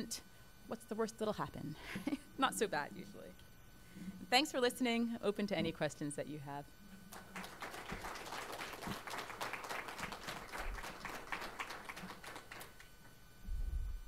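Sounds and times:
audience applauding: 0:07.1 - 0:12.9.

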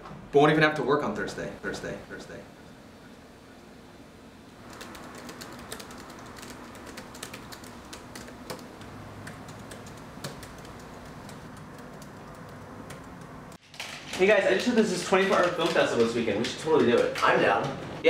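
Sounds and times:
typing on laptop keyboard: 0:04.6 - 0:13.9, 0:15.1 - 0:17.8.

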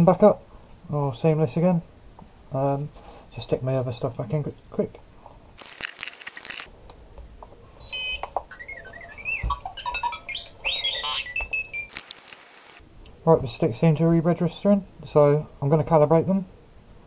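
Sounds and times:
radio transmitter beeping tune: 0:07.8 - 0:12.8.

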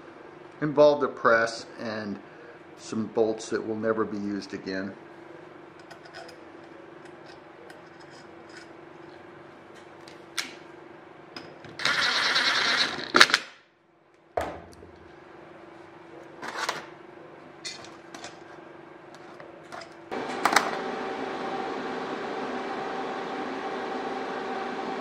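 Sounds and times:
cordless drill spinning: 0:11.8 - 0:13.1.

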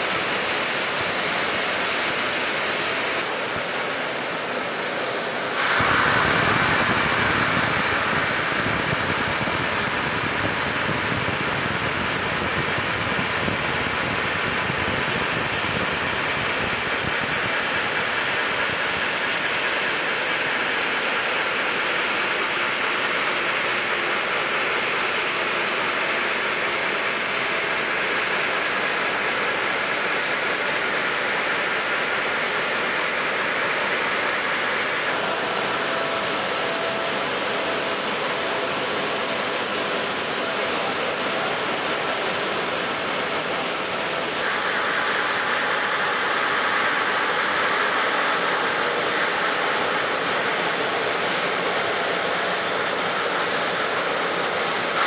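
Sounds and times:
water spray hissing: 0:00.0 - 0:18.9
circular saw cutting stone: 0:00.0 - 0:55.0.

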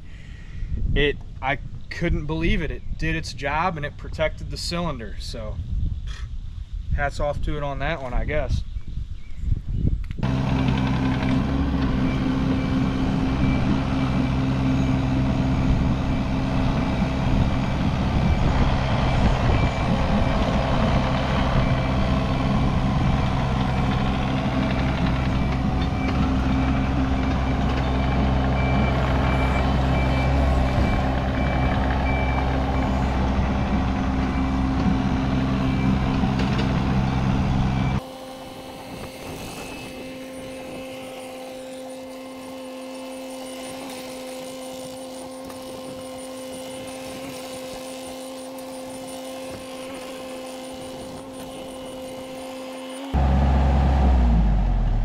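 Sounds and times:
quiet engine hum: 0:10.2 - 0:38.2
excavator engine running at high revs: 0:10.2 - 0:55.0
high-pitched beeping alarm: 0:10.3 - 0:53.2.

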